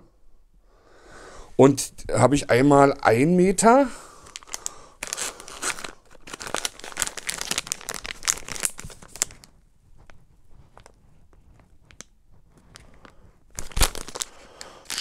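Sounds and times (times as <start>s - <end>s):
plastic bag crinkling: 4.2s - 9.6s, 12.8s - 15.0s.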